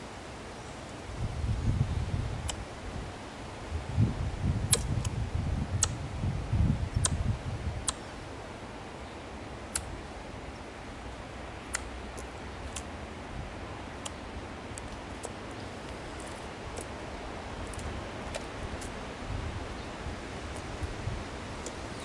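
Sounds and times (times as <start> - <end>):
squirrel clicking calls: 7.8 - 8.1.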